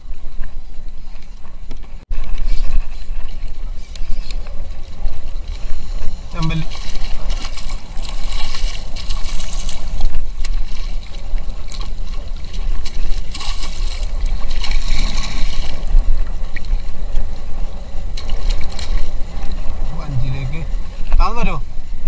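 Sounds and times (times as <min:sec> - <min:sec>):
steady low rumble: 0:00.0 - 0:22.0
water splashing around a kayak: 0:00.0 - 0:22.0
fish thrashing at the surface: 0:06.5 - 0:15.9.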